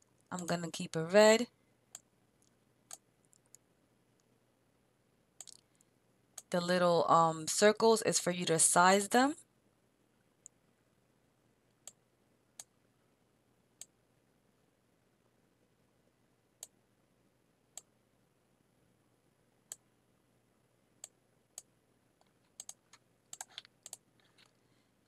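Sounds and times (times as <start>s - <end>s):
computer mouse clicking: 5.4s - 6.5s, 21.0s - 24.6s.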